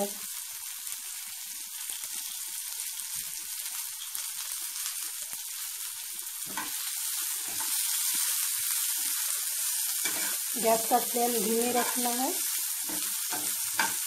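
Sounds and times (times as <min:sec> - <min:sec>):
onion sizzling in hot oil: 0:00.0 - 0:14.0
pan contents stirred knock: 0:12.8 - 0:14.0.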